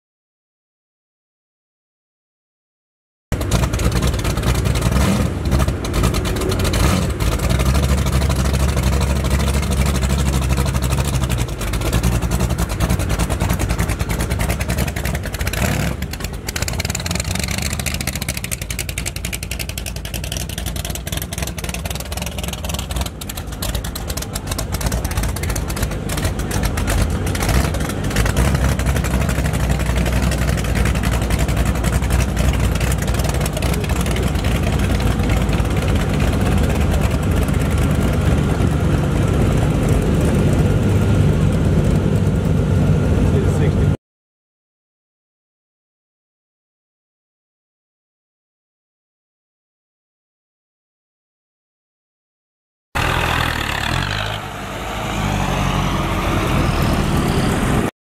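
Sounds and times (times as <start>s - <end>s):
car engines rumbling: 3.3s - 44.0s, 53.0s - 57.9s
crowd chatter: 33.4s - 37.6s.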